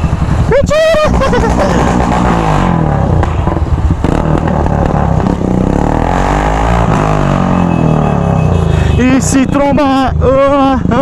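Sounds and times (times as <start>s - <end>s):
motorcycle engine revving: 0.0s - 11.0s
other motorcycle revving nearby: 0.0s - 11.0s.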